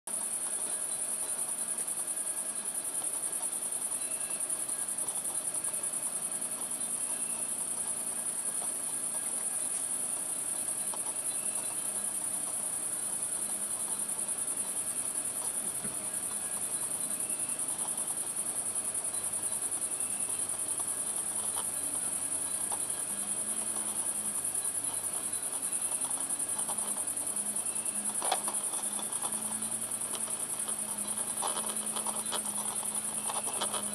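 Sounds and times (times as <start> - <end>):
crickets chirring: 0.1 - 33.9.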